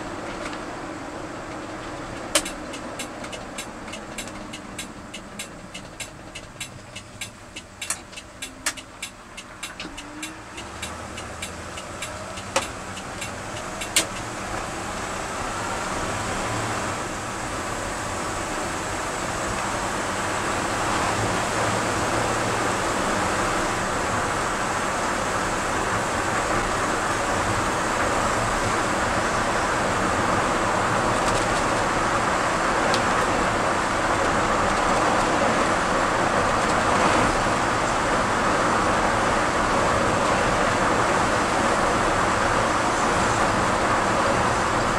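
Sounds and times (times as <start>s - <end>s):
pickup engine accelerating: 0.0s - 44.9s
sharp clicks: 2.2s - 14.3s.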